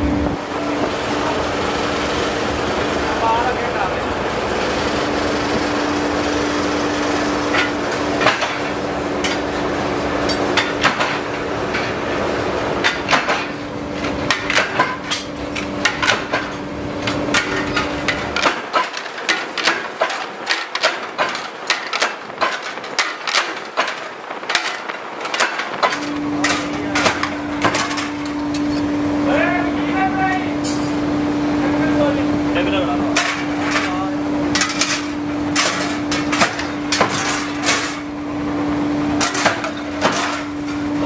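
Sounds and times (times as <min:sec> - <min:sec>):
rolling mill humming: 0:00.0 - 0:41.0
sharp metallic clacks and knocks: 0:07.5 - 0:09.4, 0:10.3 - 0:12.0, 0:12.8 - 0:28.9, 0:33.2 - 0:38.1, 0:39.2 - 0:40.8.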